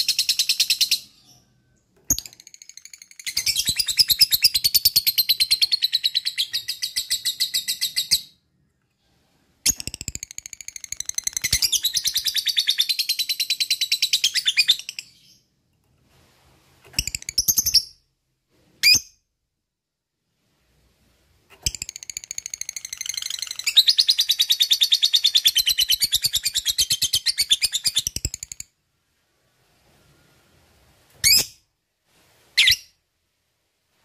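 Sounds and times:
bird chirps: 0:00.0 - 0:08.4, 0:09.6 - 0:15.6, 0:21.6 - 0:28.7.

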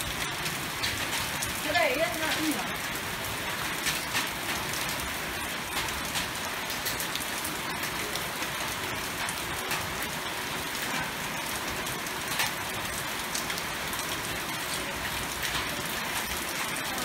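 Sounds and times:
rain falling on plants and path: 0:00.0 - 0:17.0.

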